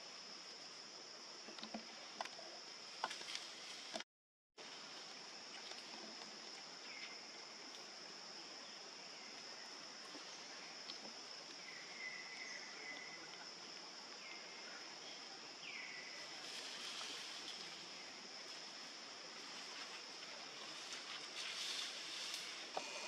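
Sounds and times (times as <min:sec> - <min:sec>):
high insect drone: 0:04.6 - 0:23.0
soft hiss: 0:04.6 - 0:23.0.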